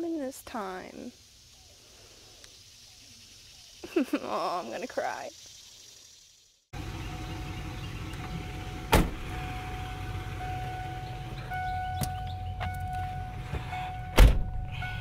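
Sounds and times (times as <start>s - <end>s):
engine whine: 6.7s - 15.0s
van engine rumbling: 6.7s - 15.0s
loud thumps: 8.9s - 9.3s.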